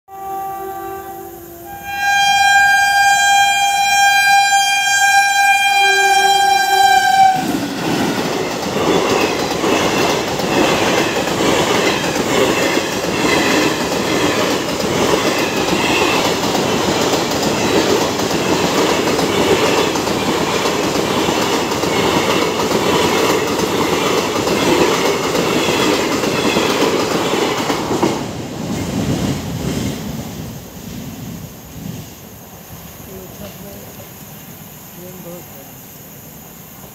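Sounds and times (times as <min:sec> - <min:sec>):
train horn blasts: 0:00.1 - 0:07.6
train rushing past: 0:00.1 - 0:35.8
wheels clacking over rail joints: 0:07.4 - 0:30.2.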